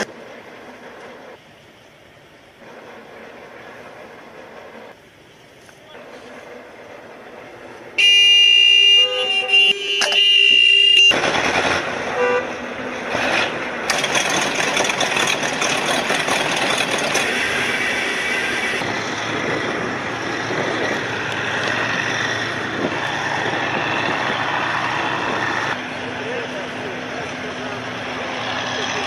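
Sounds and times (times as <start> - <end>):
heavy vehicle engines running: 0.0 - 29.0
multi-tone horn: 8.0 - 11.2, 12.1 - 12.6.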